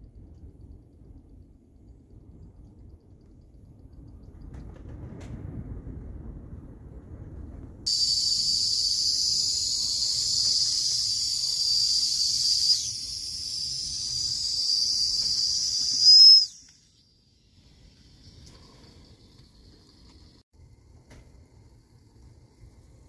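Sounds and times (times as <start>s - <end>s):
high hissy steam whistle: 7.9s - 17.7s.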